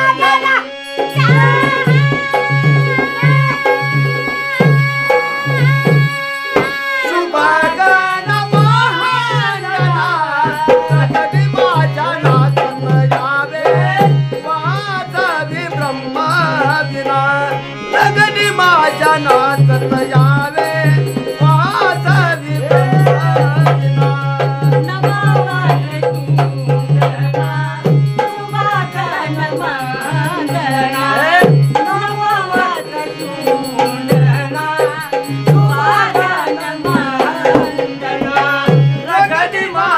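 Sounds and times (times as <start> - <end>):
male and female voices singing: 0.0 - 39.9
hand drum: 0.1 - 17.1, 17.9 - 39.2.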